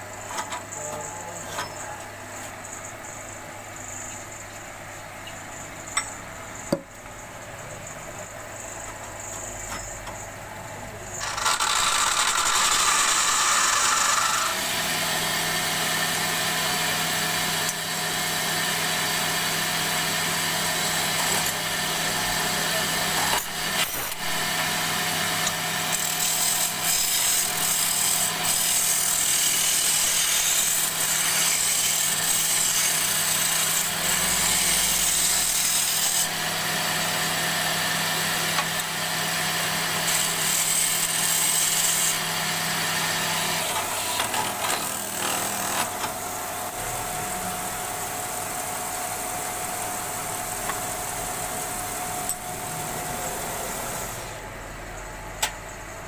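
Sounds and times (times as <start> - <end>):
turning tool cutting wood hiss: 11.1 - 46.1
wood lathe motor hum: 11.1 - 54.1.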